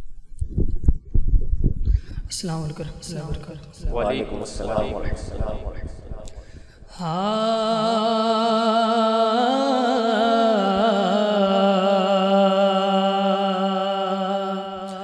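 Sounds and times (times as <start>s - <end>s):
man singing unaccompanied: 3.0s - 5.7s, 7.0s - 15.0s.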